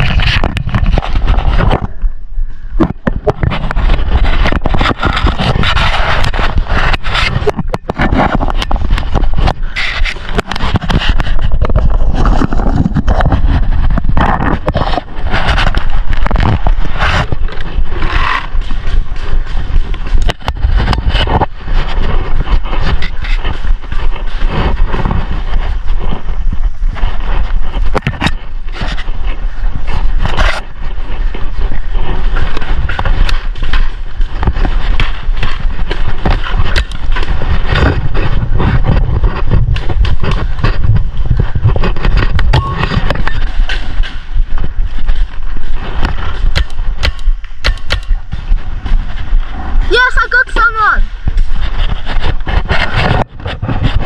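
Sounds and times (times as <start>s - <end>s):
steady low rumble: 0.0s - 54.0s
clothing rustling and scraping: 3.0s - 47.6s, 48.2s - 54.0s
sharp clicks and knocks: 31.3s - 49.4s.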